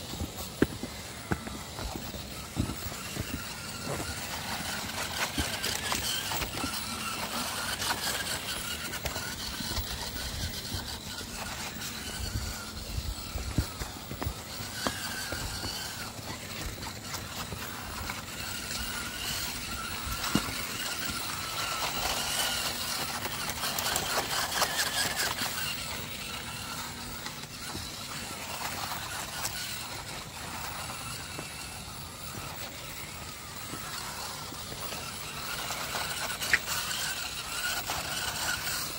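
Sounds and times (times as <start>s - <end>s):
electric motors and gears whining: 0.0s - 38.9s.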